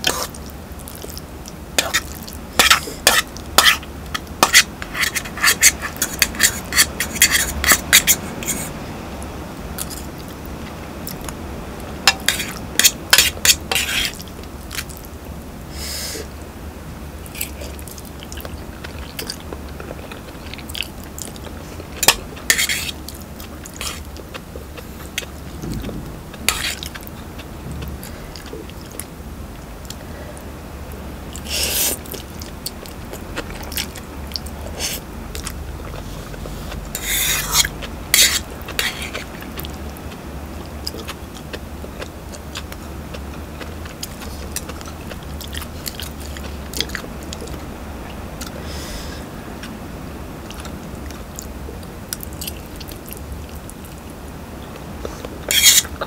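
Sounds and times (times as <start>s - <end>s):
steady low hum: 0.0s - 56.0s
fork scraping metal pot: 1.8s - 8.7s, 12.1s - 14.2s, 22.0s - 23.0s, 26.5s - 26.9s, 37.0s - 39.2s, 55.5s - 56.0s
chewing and slurping noodles: 17.3s - 25.6s, 31.3s - 47.6s.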